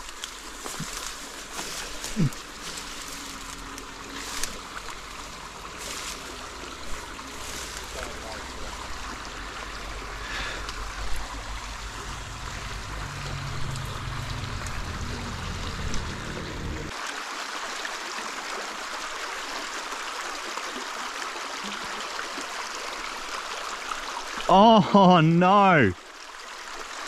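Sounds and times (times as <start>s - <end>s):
running water rushing: 0.0s - 27.0s
low rumble: 10.8s - 16.9s.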